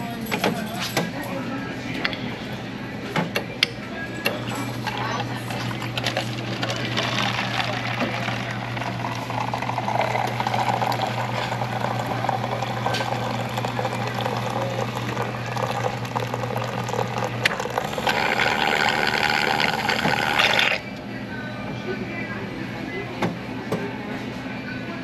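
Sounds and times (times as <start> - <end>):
machine hum: 4.2 - 21.6
coffee pouring into cup: 4.6 - 20.8.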